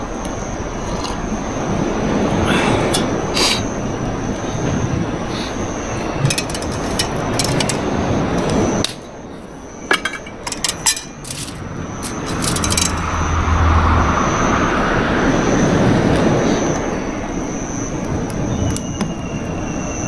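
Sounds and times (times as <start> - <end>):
small hard objects clinking: 6.1 - 8.6, 9.9 - 13.1.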